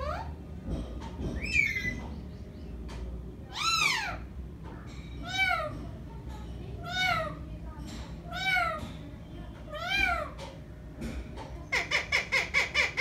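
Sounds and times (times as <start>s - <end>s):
parakeet calling: 1.4s - 2.7s, 3.5s - 4.3s, 11.6s - 13.0s.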